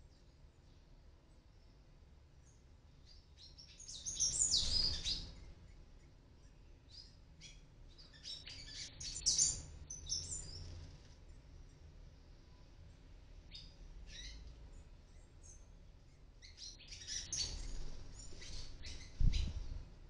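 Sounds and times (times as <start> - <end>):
high-pitched bird chirps: 6.9 - 10.7, 13.5 - 14.4, 16.4 - 19.6.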